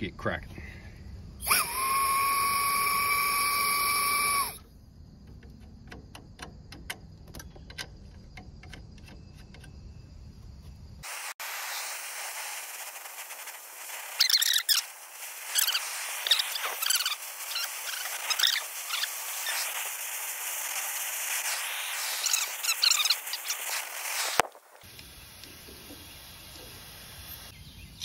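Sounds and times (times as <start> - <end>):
torch flame hissing: 1.2 - 4.6, 11.0 - 27.6
gas whistling through hose fitting: 1.4 - 4.7, 11.7 - 27.6
crackles and squeaks: 2.9 - 10.8, 13.2 - 24.8
copper lines clicking: 5.2 - 9.9.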